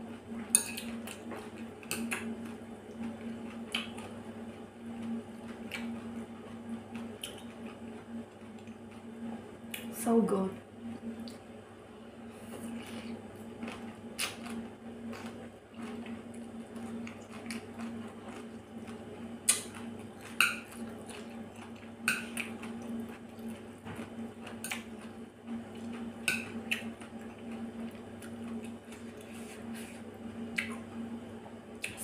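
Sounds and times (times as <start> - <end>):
steady low hum: 0.0 - 32.0
wet chewing and slurping: 12.6 - 25.2.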